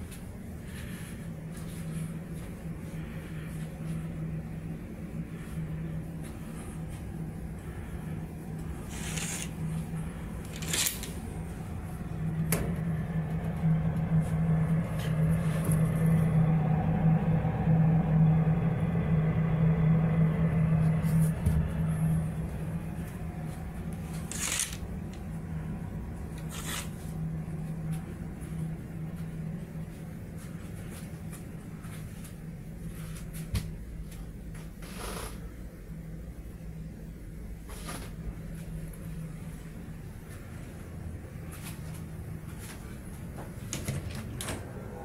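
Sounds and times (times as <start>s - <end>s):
ship machinery hum: 0.0s - 45.0s
curtain sliding along rail: 8.8s - 9.6s, 10.4s - 11.2s, 24.1s - 24.8s, 26.4s - 27.0s.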